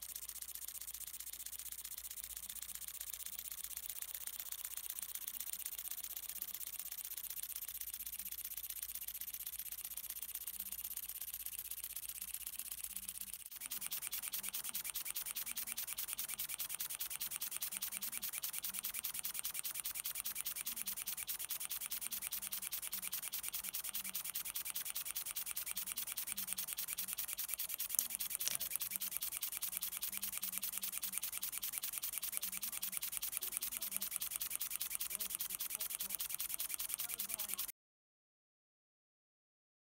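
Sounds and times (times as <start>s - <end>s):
miniature engine ticking hiss: 0.0s - 37.7s.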